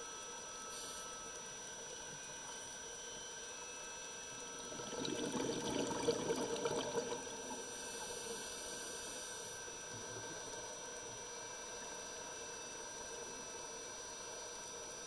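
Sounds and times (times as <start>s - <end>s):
underwater bubbles popping: 4.6s - 7.7s.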